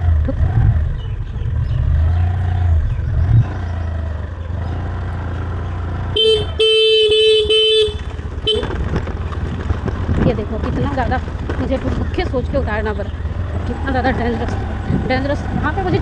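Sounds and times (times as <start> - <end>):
scooter running rumble: 0.0 - 16.0
scooter horn honking: 6.1 - 8.9.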